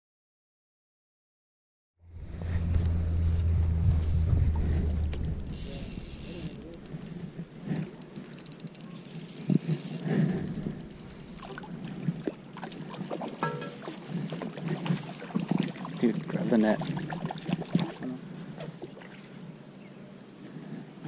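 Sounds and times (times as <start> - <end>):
fishing reel ticking: 4.5 - 15.4, 16.0 - 20.0
fish splashing at surface: 9.5 - 19.5.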